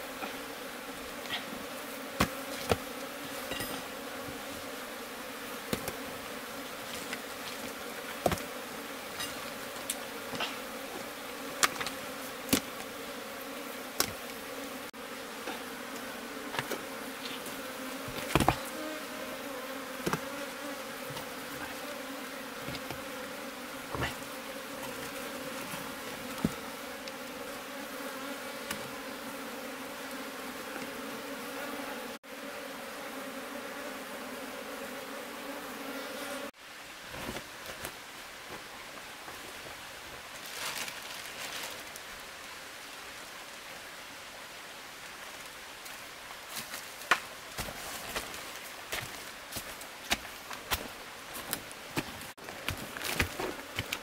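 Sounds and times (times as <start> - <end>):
honeybees buzzing: 0.0 - 36.6, 47.0 - 54.0
rocks clacking and knocking: 18.1 - 18.7, 46.5 - 54.0.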